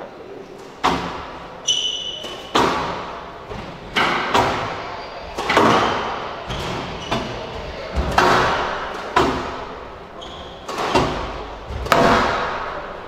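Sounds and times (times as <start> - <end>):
squash ball echoing smacks: 0.6 - 13.0
short high squeak: 1.6 - 2.5.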